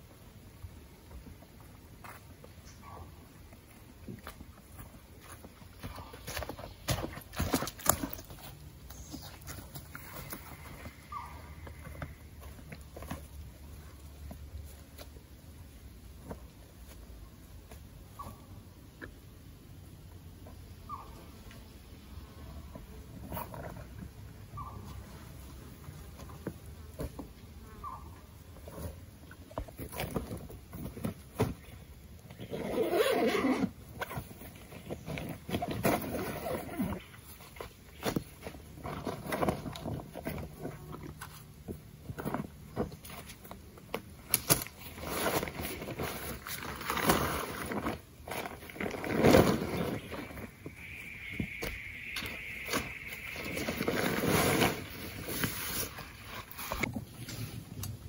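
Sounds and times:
camping gear rustling: 0.6s - 18.4s, 22.7s - 58.0s
plastic tarp rustling: 44.3s - 50.7s, 52.2s - 57.7s.

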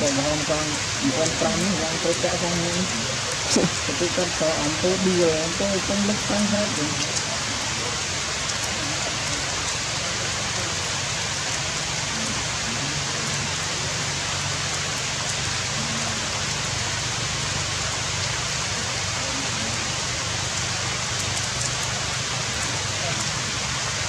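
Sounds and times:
faint raindrop ticks: 0.0s - 24.0s
rain on forest foliage: 0.0s - 24.0s.

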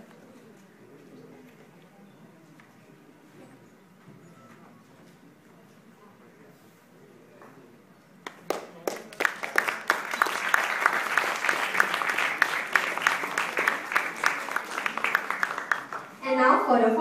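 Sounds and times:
audience applauding: 8.2s - 16.2s.

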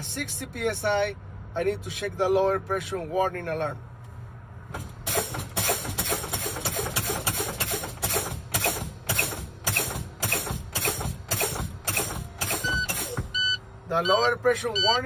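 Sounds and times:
air brake bursts: 4.7s - 13.6s.

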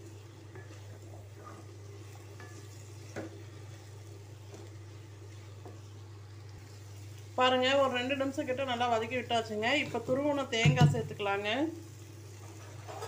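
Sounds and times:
wooden spatula scraping pan: 0.1s - 4.7s, 12.3s - 13.0s.

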